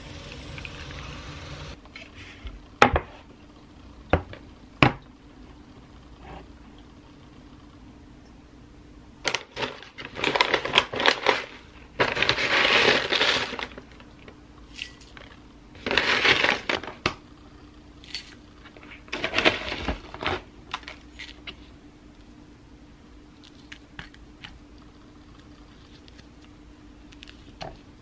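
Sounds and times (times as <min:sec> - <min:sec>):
plastic bag rustling and crinkling: 0:09.3 - 0:17.1, 0:18.1 - 0:21.7.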